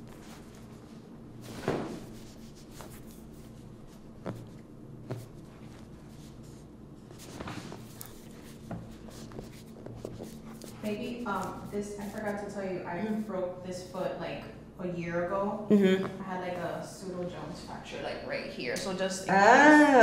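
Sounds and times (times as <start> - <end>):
thump on table: 1.6 - 2.0.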